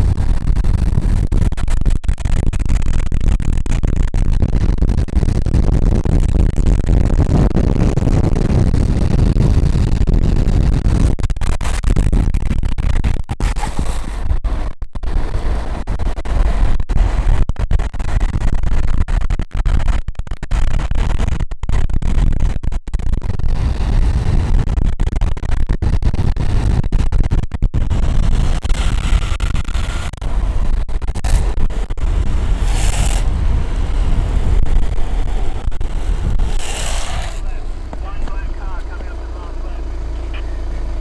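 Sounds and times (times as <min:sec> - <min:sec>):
wind buffeting microphone: 0:00.0 - 0:14.4, 0:25.8 - 0:38.9
longboard wheels rumbling on asphalt: 0:00.0 - 0:41.0
wheels sliding hissing scrape: 0:32.4 - 0:37.7.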